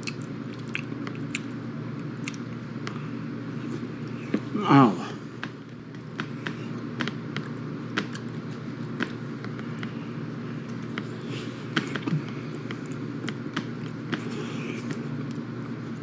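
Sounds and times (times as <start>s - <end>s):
person chewing: 0.0s - 16.0s
steady low hum: 0.0s - 16.0s
wet mouth smacks: 2.2s - 2.6s.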